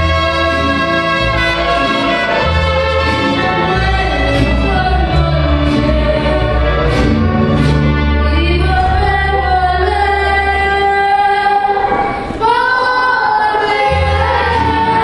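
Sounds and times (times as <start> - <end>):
trumpets: 0.0 - 10.1
guitars: 0.0 - 12.4
violins: 0.0 - 12.7
woman singing: 3.6 - 7.3, 8.2 - 15.0.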